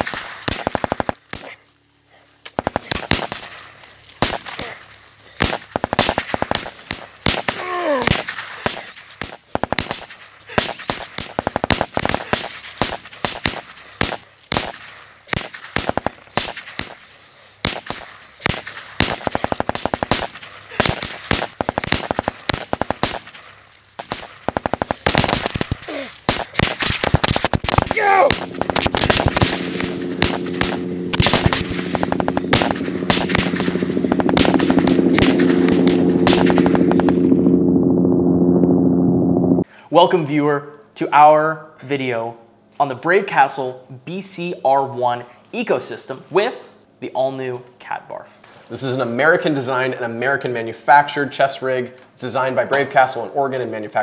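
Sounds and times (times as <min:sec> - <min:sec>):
gunfire: 0:00.0 - 0:01.6, 0:02.6 - 0:17.0, 0:17.6 - 0:37.3
person shouting: 0:07.6 - 0:08.1, 0:27.9 - 0:28.4
low musical chord: 0:28.4 - 0:39.6.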